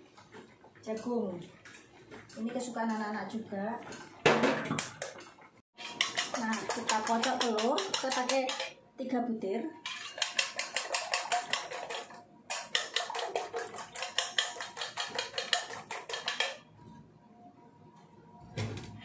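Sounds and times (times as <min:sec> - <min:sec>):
whisk clinking against metal bowl: 0:04.7 - 0:08.8, 0:09.8 - 0:16.6.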